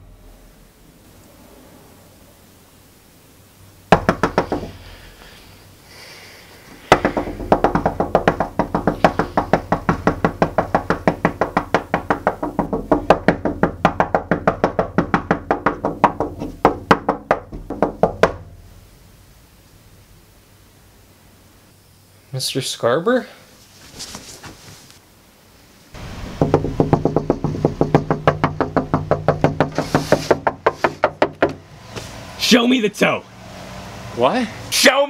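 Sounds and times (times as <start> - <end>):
knocking on window glass: 3.9 - 4.8, 6.8 - 18.5, 26.3 - 31.6.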